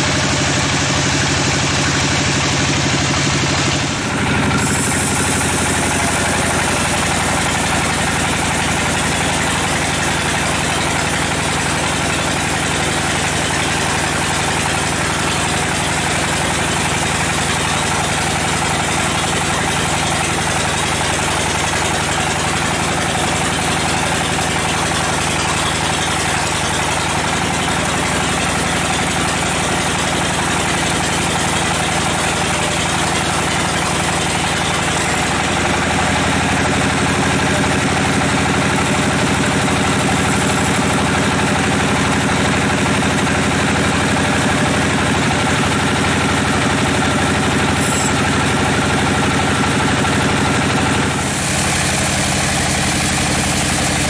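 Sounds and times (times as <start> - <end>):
band saw cutting log: 0.0 - 54.0
saw drive hum: 0.0 - 54.0.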